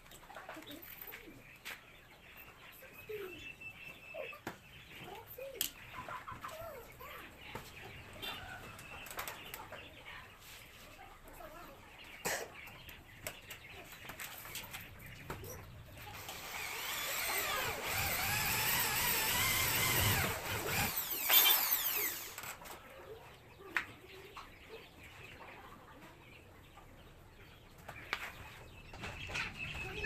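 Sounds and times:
electric drill whining: 16.2 - 22.5.

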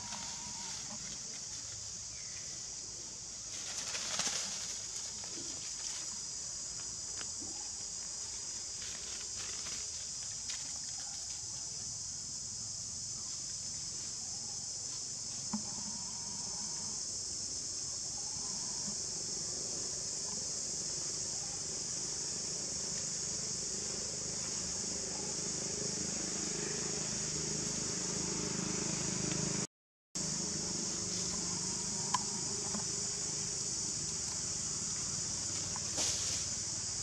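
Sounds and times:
insects droning: 0.0 - 37.0
leaves and branches rustling: 3.4 - 6.4, 8.0 - 11.4, 35.4 - 36.7.

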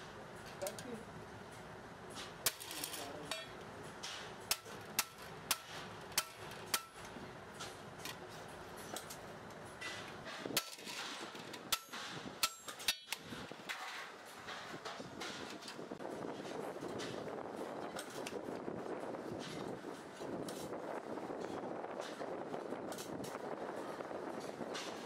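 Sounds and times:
hammer striking metal: 3.3 - 7.0, 11.7 - 13.2.

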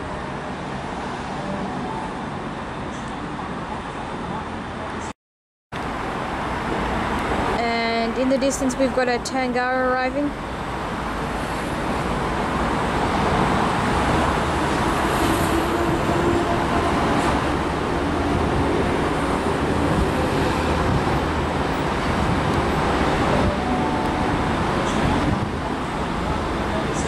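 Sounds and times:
road traffic rumble: 5.8 - 27.0.

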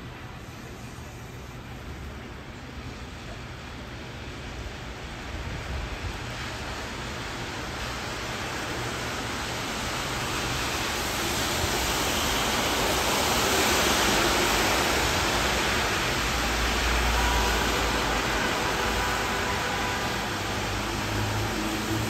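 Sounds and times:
car tyres hissing on wet street: 0.0 - 22.0
steady rain: 0.0 - 22.0.

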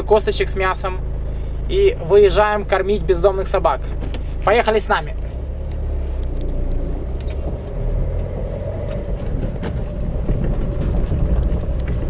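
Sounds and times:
car engine and road rumble: 0.0 - 12.0.

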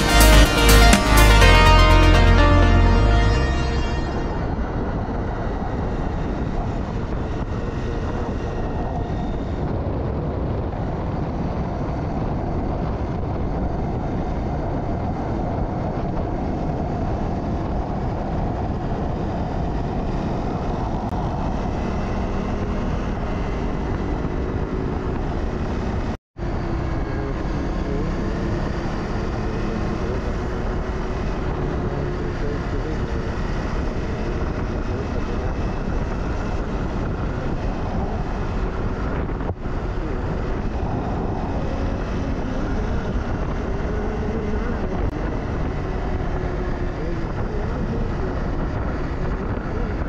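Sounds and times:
wind and road noise: 0.0 - 50.0.

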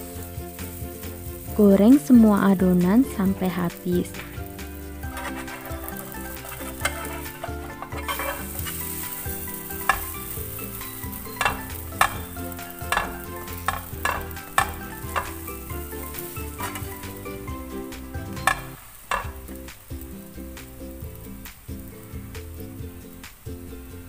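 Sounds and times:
dough frying in oil: 0.0 - 24.0
metal spatula scraping pan: 4.1 - 19.5.

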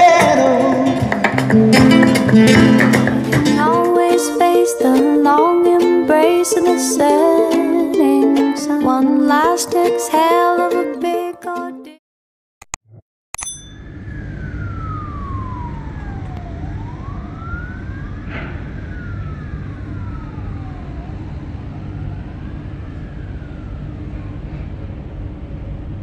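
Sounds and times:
siren wailing: 0.9 - 7.4, 13.8 - 25.4
low rumble: 13.8 - 26.0.

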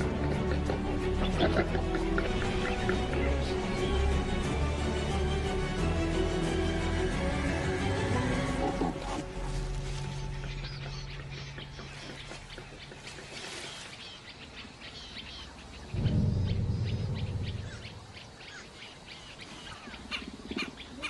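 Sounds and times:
small birds chirping: 8.6 - 21.0
loud low rumble: 15.9 - 18.4.

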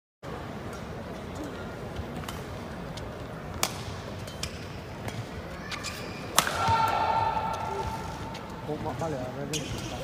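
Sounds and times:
racket striking shuttlecock: 3.6 - 5.2, 6.3 - 8.0.

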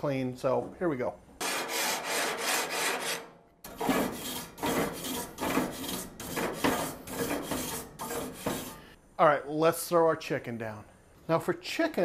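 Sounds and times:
grill grates being scrubbed: 1.4 - 9.0.

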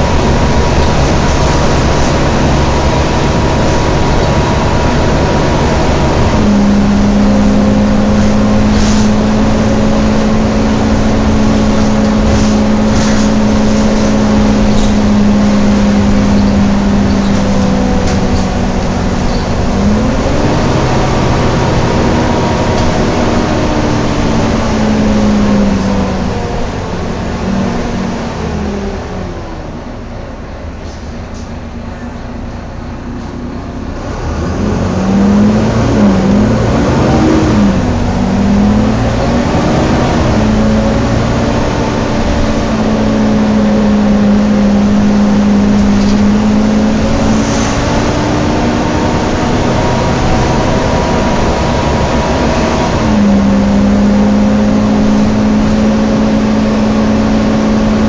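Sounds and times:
bus engine running: 0.0 - 58.0
engine cooling fan whining: 0.0 - 58.0.

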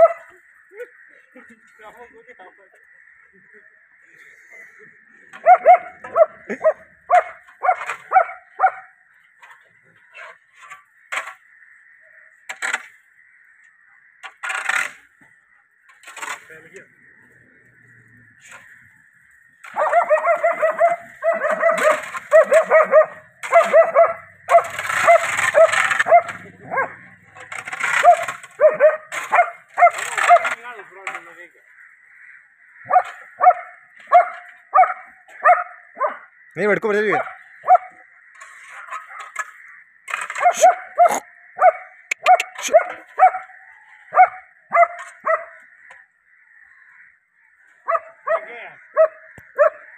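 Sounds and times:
dog barking: 0.0 - 0.3, 5.4 - 8.9, 19.7 - 27.0, 27.9 - 30.4, 32.9 - 36.3, 37.1 - 38.0, 40.4 - 43.5, 44.1 - 45.6, 47.8 - 49.9.

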